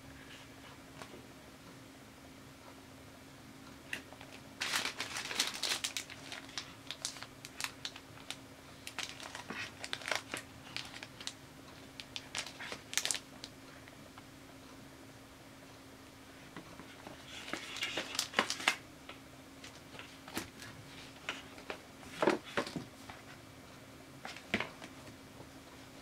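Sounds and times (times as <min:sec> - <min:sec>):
plastic packaging crinkling: 0:04.2 - 0:11.4, 0:12.0 - 0:13.3, 0:17.2 - 0:18.8.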